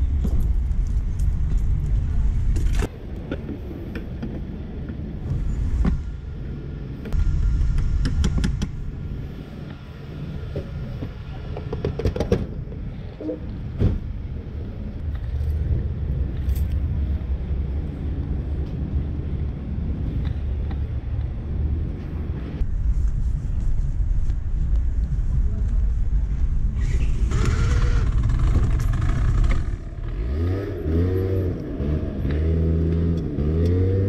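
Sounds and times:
sharp clicks and rattles: 27.3s - 29.9s.

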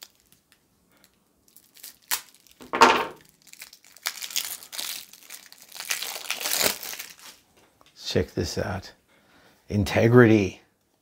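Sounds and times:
plastic ripping: 0.0s - 7.4s
shrink wrap crinkling: 0.0s - 7.6s.

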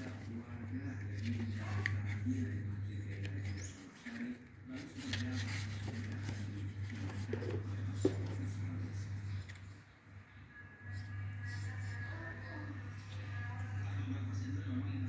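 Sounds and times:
paper pages rustling: 0.0s - 9.8s
steady low hum: 0.0s - 15.0s.

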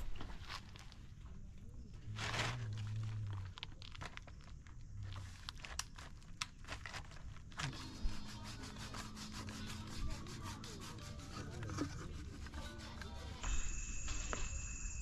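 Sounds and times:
plastic sheet crinkling: 2.1s - 8.4s.

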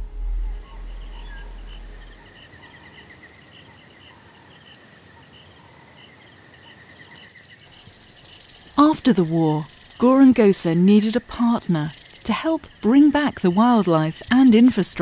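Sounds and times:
low music drone: 0.0s - 3.0s
pulsing insect trill: 0.0s - 4.8s, 6.0s - 14.6s.

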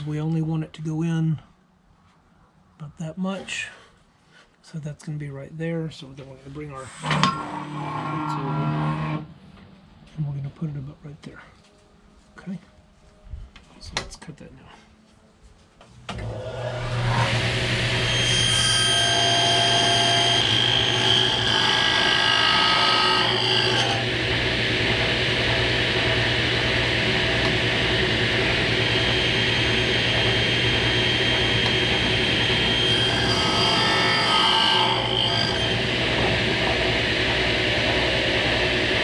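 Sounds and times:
table saw cutting wood: 6.8s - 9.3s, 16.1s - 39.0s
steady motor hum: 19.4s - 39.0s.

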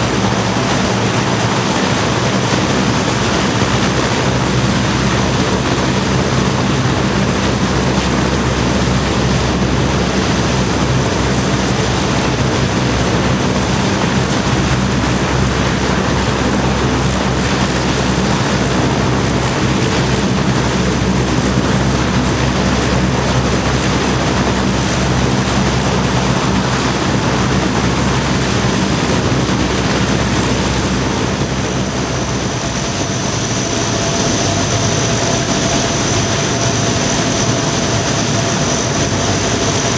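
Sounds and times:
high engine whine: 0.0s - 39.9s
propeller aircraft engines droning: 0.0s - 39.9s.

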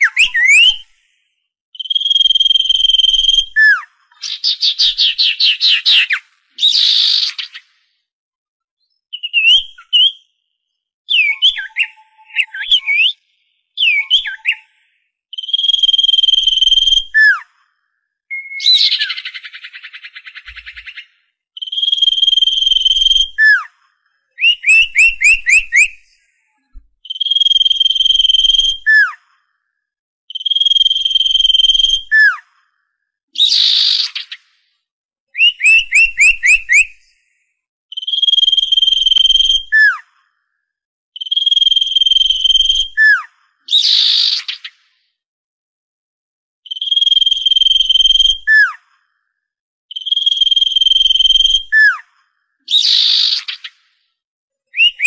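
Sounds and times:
bird high whistle: 0.0s - 1.2s, 1.8s - 7.7s, 9.1s - 10.3s, 11.1s - 17.5s, 18.3s - 21.0s, 21.6s - 23.8s, 24.4s - 29.3s, 30.4s - 32.5s, 33.4s - 34.4s, 35.4s - 37.1s, 37.9s - 40.1s, 41.2s - 44.7s, 46.7s - 48.9s, 49.9s - 52.1s, 52.7s - 53.8s, 54.7s - 55.0s.

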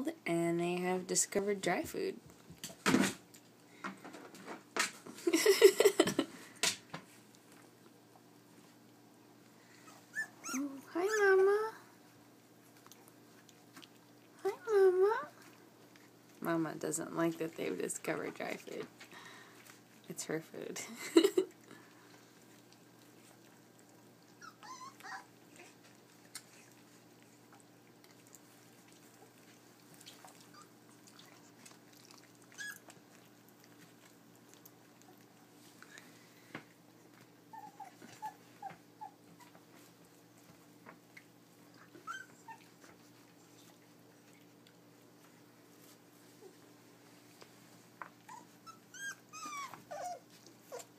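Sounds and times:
puppies whimpering and squeaking: 9.8s - 11.8s, 24.3s - 27.0s, 30.2s - 30.8s, 32.4s - 33.0s, 37.4s - 39.7s, 41.8s - 42.9s, 48.2s - 50.9s.

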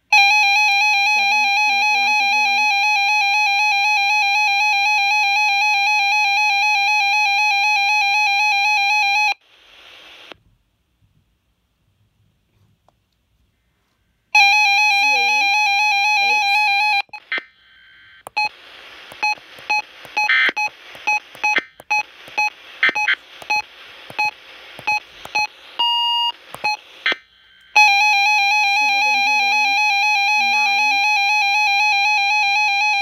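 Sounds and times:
radio static: 9.4s - 10.4s, 14.4s - 33.0s.

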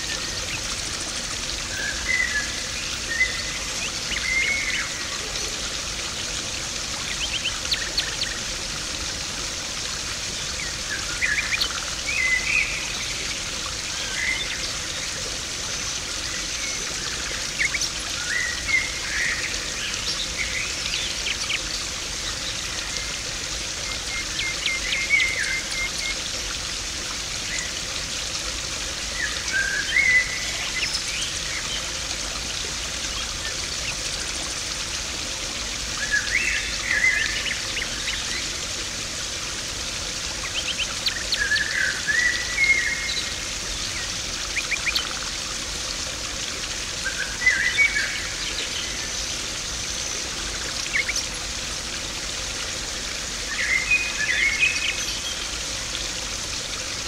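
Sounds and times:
pond water trickling and splashing: 0.0s - 57.0s
small birds chirping: 40.3s - 45.2s, 50.0s - 51.5s.

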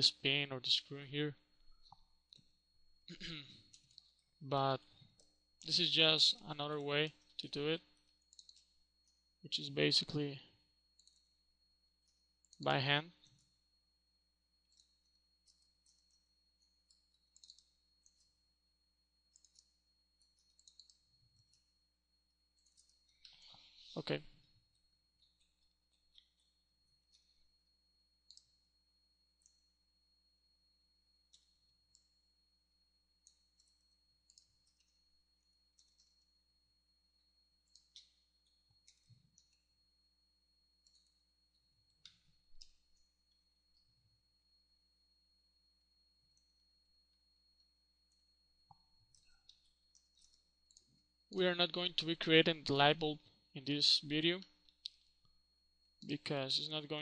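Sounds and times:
mouse and keyboard clicks: 16.9s - 18.3s.

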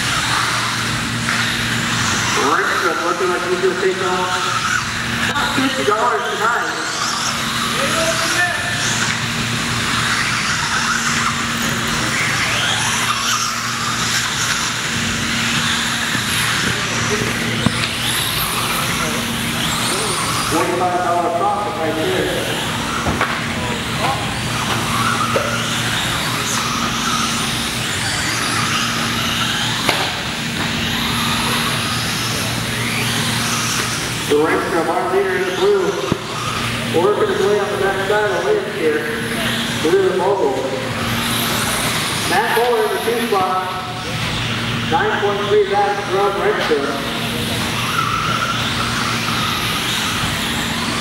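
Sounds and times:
small electric motors whining: 0.0s - 51.0s
steady low hum: 0.0s - 51.0s.

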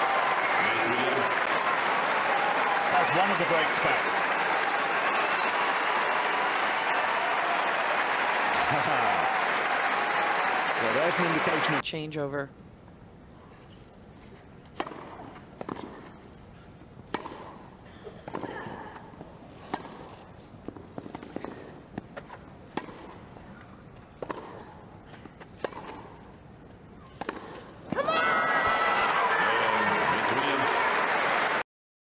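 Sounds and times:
crowd cheering and applauding: 0.0s - 11.8s, 28.0s - 31.6s
tennis racket striking ball: 14.8s - 16.1s, 17.1s - 18.5s, 19.7s - 23.2s, 24.2s - 24.6s, 25.6s - 26.2s, 27.2s - 27.7s.

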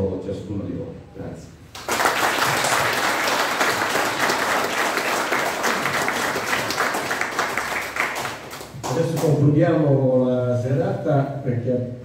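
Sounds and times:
audience applauding: 1.7s - 9.2s.

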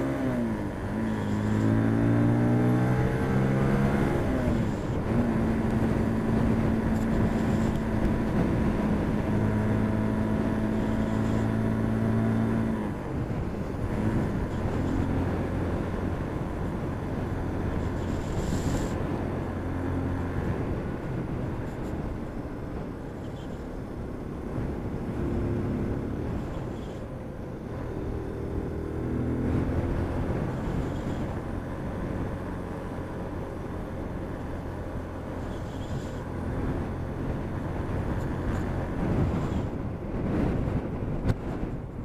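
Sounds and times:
motorcycle engine accelerating: 0.0s - 42.0s
wind rushing on microphone: 0.0s - 42.0s.

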